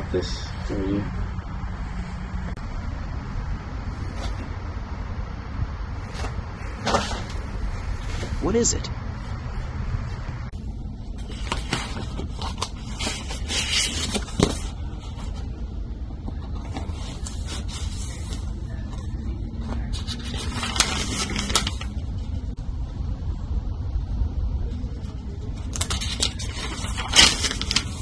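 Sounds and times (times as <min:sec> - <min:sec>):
low rumble: 0:00.0 - 0:13.4, 0:14.7 - 0:26.0
paper rustling: 0:03.9 - 0:04.5, 0:06.0 - 0:08.4, 0:11.1 - 0:22.5, 0:24.7 - 0:28.0.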